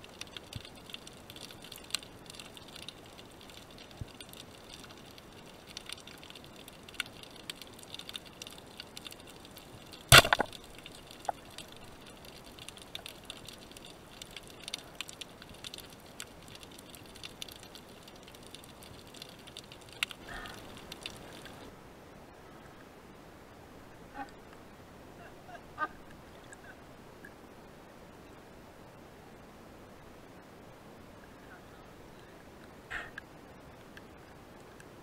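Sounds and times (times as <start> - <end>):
underwater ticks and clicks: 0.0 - 21.7, 25.8 - 27.4, 32.1 - 35.0
speargun firing crack: 10.1 - 10.6.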